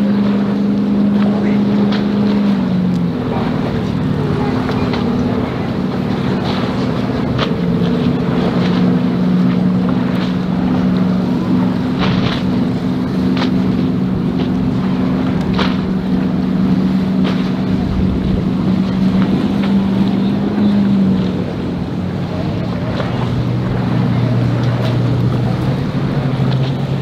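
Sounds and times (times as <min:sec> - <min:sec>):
outboard motors droning: 0:00.0 - 0:27.0
wind on microphone: 0:00.9 - 0:27.0.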